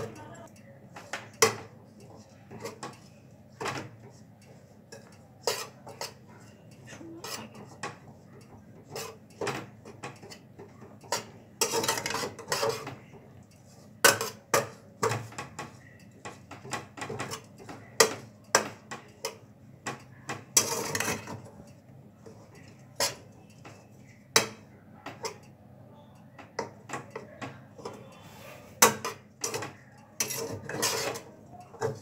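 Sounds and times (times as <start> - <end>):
metal spatula scraping a pan: 3.7 - 19.4, 20.5 - 21.5, 22.2 - 24.6, 27.8 - 32.0.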